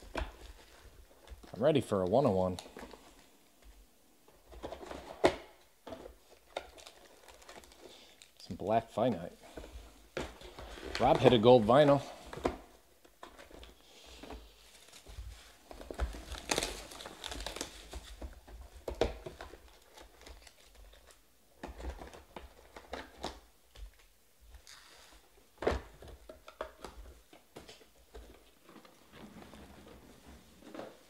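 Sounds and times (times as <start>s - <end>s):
foil packs crinkling: 6.6s - 8.4s, 14.6s - 18.4s.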